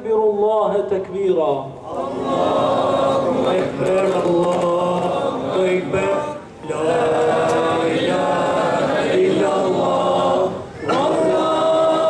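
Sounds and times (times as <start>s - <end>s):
men chanting together: 1.8s - 12.0s.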